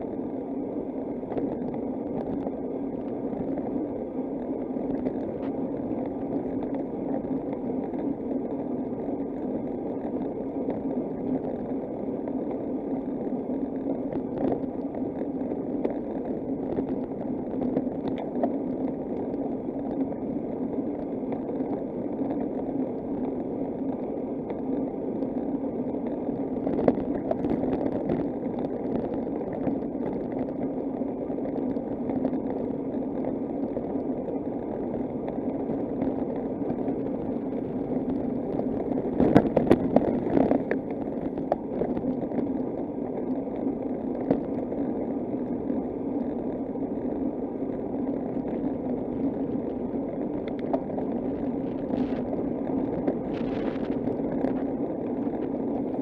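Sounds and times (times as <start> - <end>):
low hum: 0.0 - 56.0
wind noise: 35.7 - 42.5, 48.5 - 56.0.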